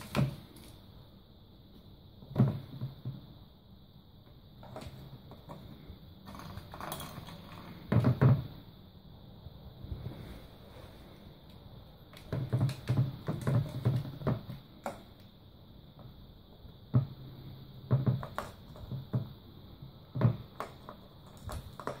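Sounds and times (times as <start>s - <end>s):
ball rolling inside plastic track: 4.6s - 8.6s, 12.2s - 15.2s, 20.1s - 22.0s
plastic toy knocking and rattling: 6.2s - 8.5s, 12.2s - 15.2s, 17.9s - 19.3s, 20.1s - 22.0s.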